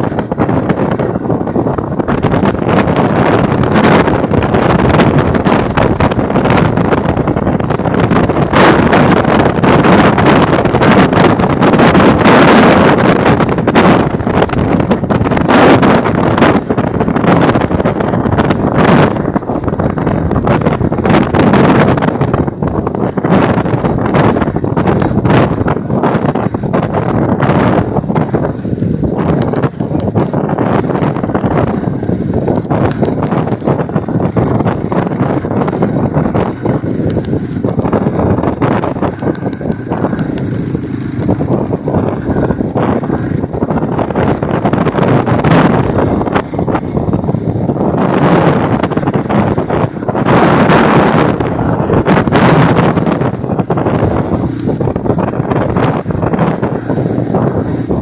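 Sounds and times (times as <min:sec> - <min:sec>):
motorcycle engine: 0:00.0 - 0:58.0
tyre noise on dirt road: 0:00.0 - 0:58.0
wind buffeting microphone: 0:00.0 - 0:58.0.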